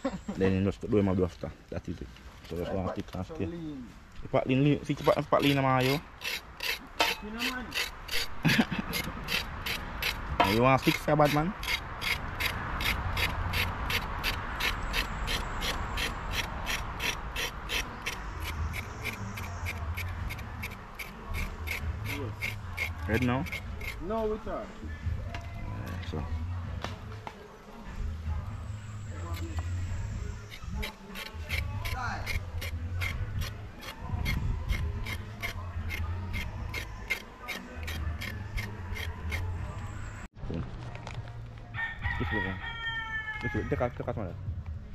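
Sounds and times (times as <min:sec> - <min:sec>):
knife scraping carrot skin: 0:05.0 - 0:24.0, 0:30.4 - 0:39.5.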